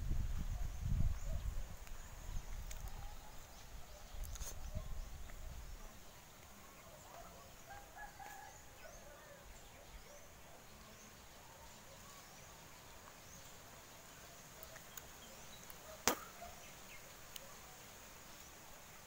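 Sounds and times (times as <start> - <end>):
bird calls: 14.3 - 17.8.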